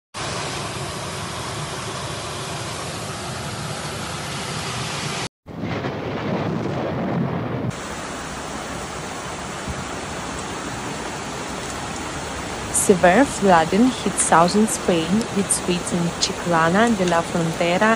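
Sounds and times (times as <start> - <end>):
heavy rain: 0.2 - 17.9
low rumble of thunder: 5.5 - 17.9
floodwater rushing: 7.6 - 17.9.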